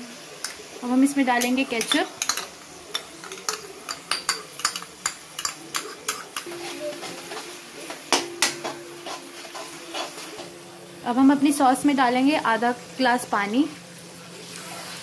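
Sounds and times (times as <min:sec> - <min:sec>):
light sizzle: 0:00.0 - 0:15.0
ladle stirring sauce in metal pan: 0:01.4 - 0:10.6.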